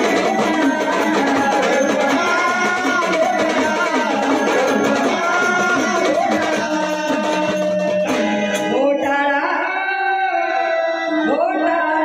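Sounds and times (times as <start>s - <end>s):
drum strokes: 0.0s - 8.9s
person singing folk song: 0.0s - 12.0s.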